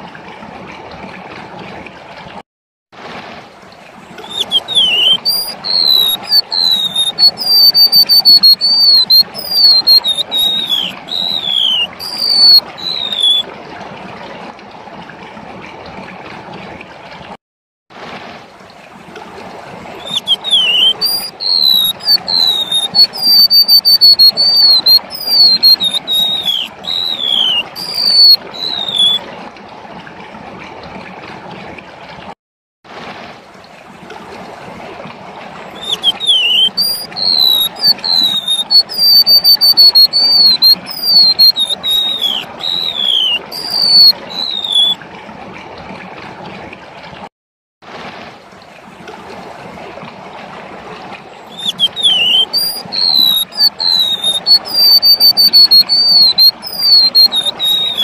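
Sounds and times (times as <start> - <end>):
running water trickling: 3.5 - 13.8, 18.5 - 30.3, 33.5 - 46.2, 48.0 - 58.0
bird singing high whistled notes: 4.2 - 13.4, 20.0 - 29.2, 35.7 - 45.0, 51.5 - 58.0.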